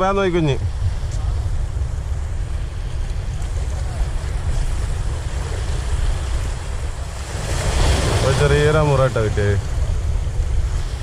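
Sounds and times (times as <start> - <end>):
wind rumble on microphone: 0.0 - 11.0
small waves washing against rocks: 1.8 - 11.0.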